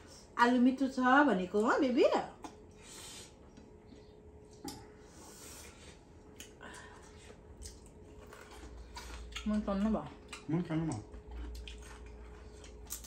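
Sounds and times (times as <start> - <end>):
faint steady hum: 0.0 - 13.0
chewing: 5.7 - 13.0.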